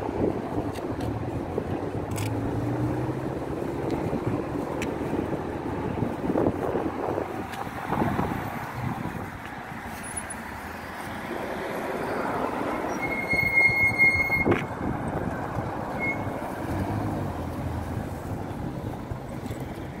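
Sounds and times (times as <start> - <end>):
passing vehicles rushing: 0.0 - 20.0
high steady squeal: 12.9 - 14.6, 15.9 - 16.4.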